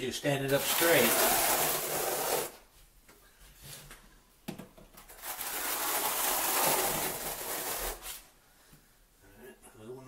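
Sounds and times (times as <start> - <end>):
trowel scraping through mortar: 0.5 - 2.6.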